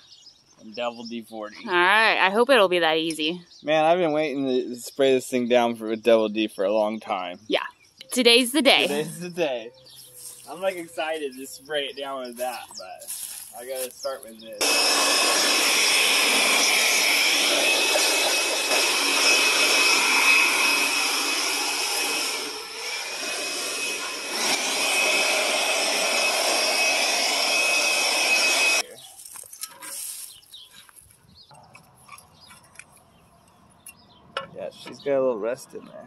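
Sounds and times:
leaf blower whining: 8.8s - 9.3s, 12.3s - 30.4s.

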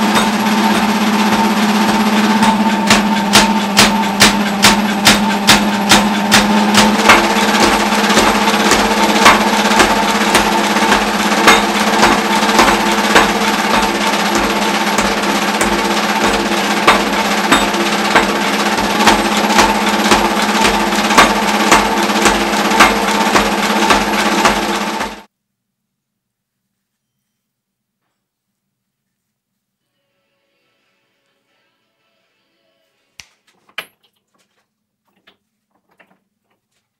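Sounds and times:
machine running hum: 0.0s - 25.3s
power hammer blows on metal: 0.0s - 25.3s.

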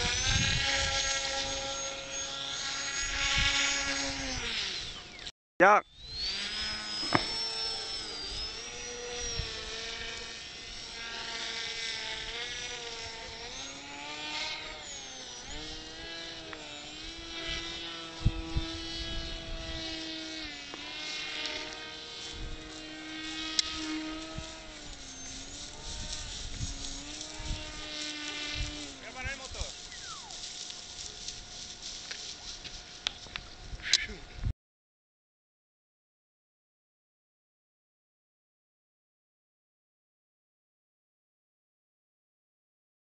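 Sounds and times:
wind thumping on microphone: 0.0s - 1.6s, 25.7s - 28.9s
model glider motor whining: 0.0s - 5.3s, 5.9s - 34.5s.

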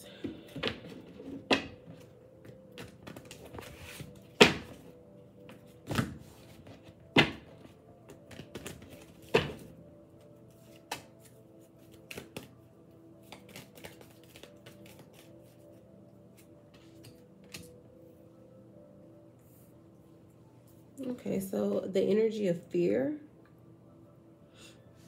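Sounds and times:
cards rustling while shuffled: 0.5s - 4.4s, 7.6s - 9.6s, 10.5s - 12.6s, 13.2s - 17.8s
cards slapping: 10.7s - 12.5s, 13.2s - 15.3s, 17.0s - 17.8s.

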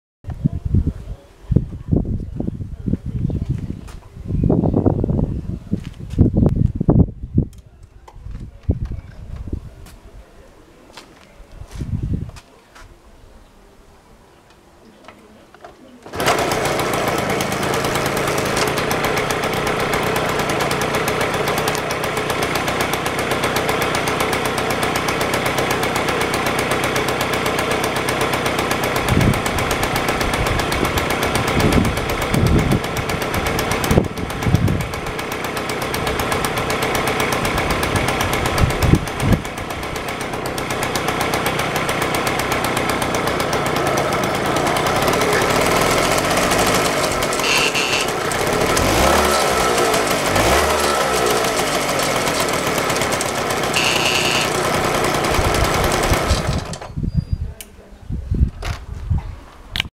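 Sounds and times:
moped engine starting and idling: 16.0s - 57.0s.

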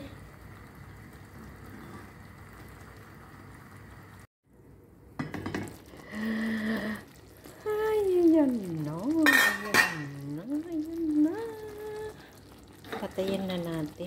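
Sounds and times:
sauce bubbling and sizzling in pan: 0.0s - 4.3s, 5.1s - 14.0s
pan clinking: 9.2s - 10.2s.

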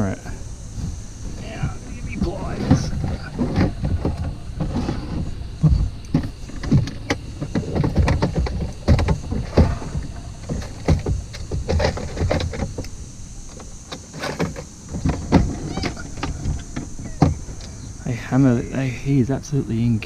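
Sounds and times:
knocks against canoe hull: 1.3s - 12.8s.

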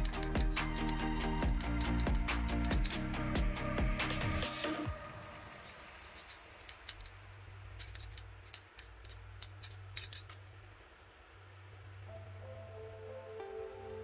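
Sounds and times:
background music: 0.0s - 5.7s, 12.1s - 14.0s
low steady hum: 0.0s - 14.0s.

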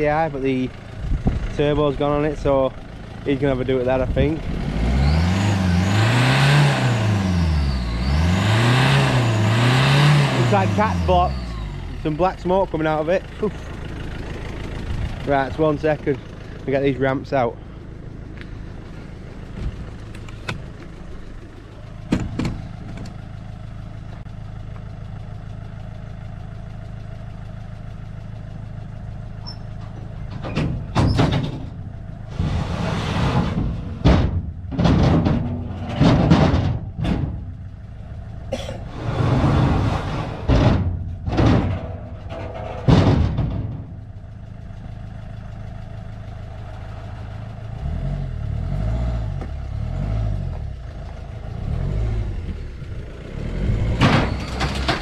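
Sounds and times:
truck engine idling: 0.0s - 5.8s, 10.3s - 55.0s
deep pulsing engine rumble: 0.0s - 55.0s
metal clanks and scrapes: 29.4s - 37.5s, 38.6s - 44.1s, 54.0s - 55.0s.

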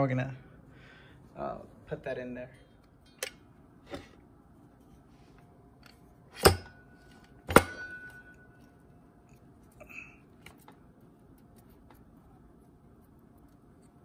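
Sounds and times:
sharp metal clunks: 6.3s - 6.8s, 7.4s - 8.4s.

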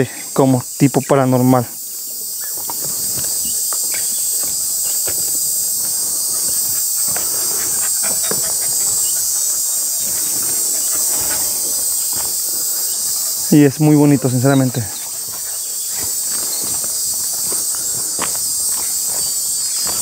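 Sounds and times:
high-pitched insect chorus: 0.0s - 20.0s
rustles on dry ground: 1.8s - 20.0s
footsteps on dry ground: 1.9s - 20.0s.

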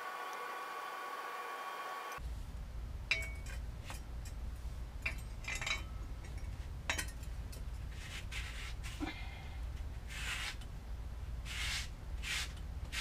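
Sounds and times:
steady low rumble: 2.2s - 8.0s, 8.9s - 12.9s
metal bicycle parts clinking: 3.1s - 4.4s, 5.0s - 8.0s.

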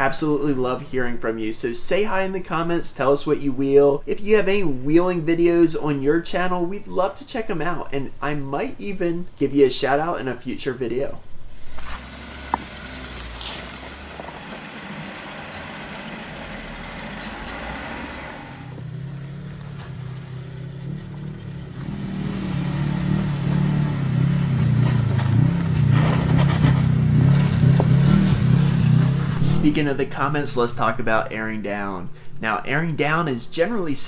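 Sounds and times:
faint background noise: 0.0s - 12.0s, 29.2s - 34.0s
engine running at low revs: 11.6s - 29.9s.

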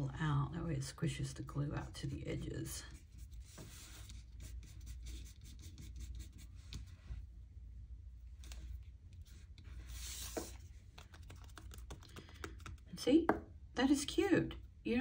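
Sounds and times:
fingers rubbing paper: 2.8s - 6.6s.

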